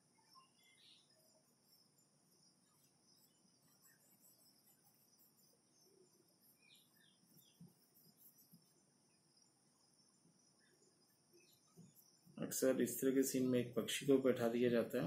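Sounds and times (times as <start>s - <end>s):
crickets chirring: 0.0s - 15.0s.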